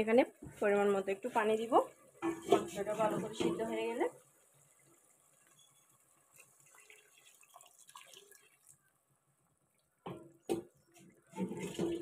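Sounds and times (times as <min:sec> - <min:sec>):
water poured into a pot: 0:04.5 - 0:09.0, 0:11.2 - 0:12.0.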